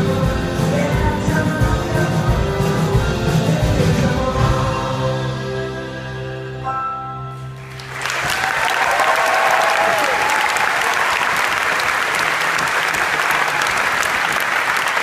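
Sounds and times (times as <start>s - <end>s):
audience applauding: 7.6s - 15.0s.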